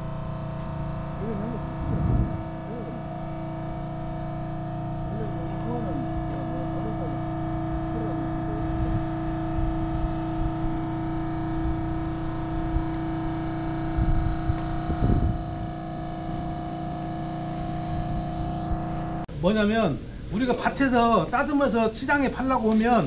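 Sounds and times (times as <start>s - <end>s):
steady machine hum: 0.0s - 23.0s
faint voices: 1.2s - 3.7s.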